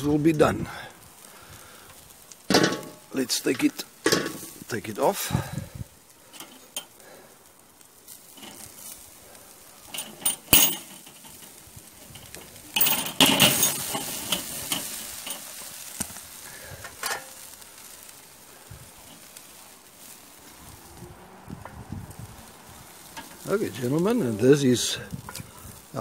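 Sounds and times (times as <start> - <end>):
faint meat sizzle: 0.0 - 26.0
metal grill grid clinking: 2.4 - 4.8, 6.2 - 7.0, 8.1 - 20.6, 22.4 - 26.0.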